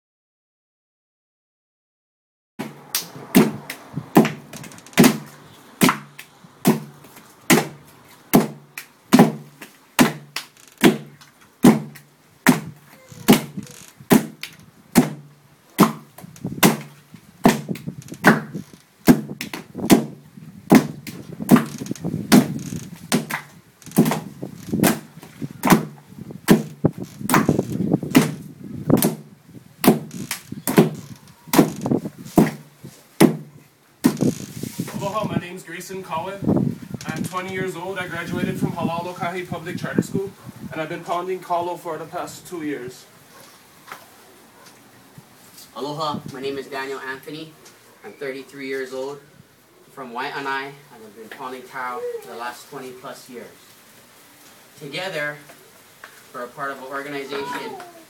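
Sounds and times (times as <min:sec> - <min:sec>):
stone pounders thudding on wooden board: 0:02.6 - 0:28.4, 0:29.0 - 0:34.3.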